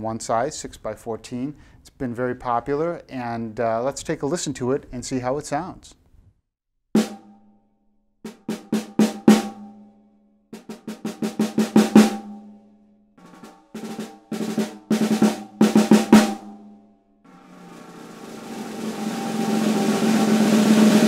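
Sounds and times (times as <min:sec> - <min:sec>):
snare drum roll: 0:07.0 - 0:07.3, 0:08.3 - 0:09.8, 0:10.6 - 0:12.5, 0:13.2 - 0:16.7, 0:17.3 - 0:21.0
snare drum played with sticks: 0:07.0 - 0:07.4, 0:08.3 - 0:09.8, 0:10.6 - 0:12.5, 0:13.2 - 0:16.7, 0:17.3 - 0:21.0.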